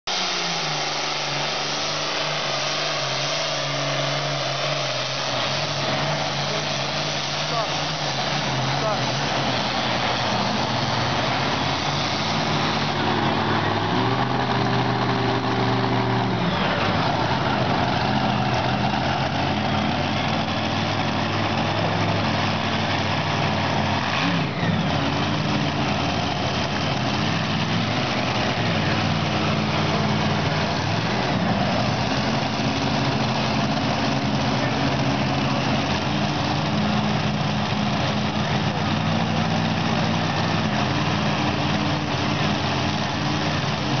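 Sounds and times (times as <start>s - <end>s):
tractor diesel engine under load: 0.0s - 44.0s.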